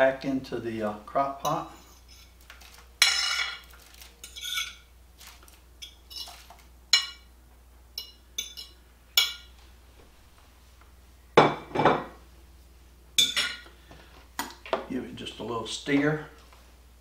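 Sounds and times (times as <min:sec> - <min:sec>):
fork clinking and scraping on plate: 0:04.2 - 0:04.8
dishes clattering: 0:11.4 - 0:12.2, 0:13.2 - 0:13.7.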